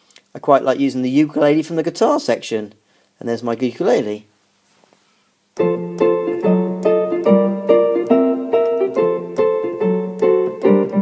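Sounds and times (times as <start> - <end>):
keyboard ukulele chords: 5.6 - 11.0.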